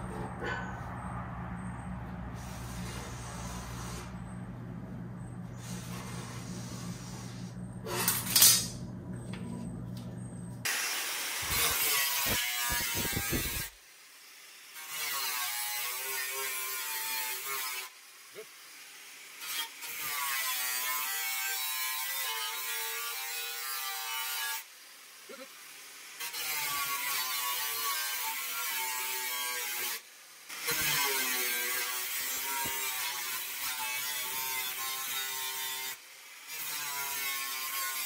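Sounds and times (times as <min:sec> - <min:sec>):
angle grinder cutting steel: 0:05.6 - 0:08.7, 0:10.7 - 0:38.0.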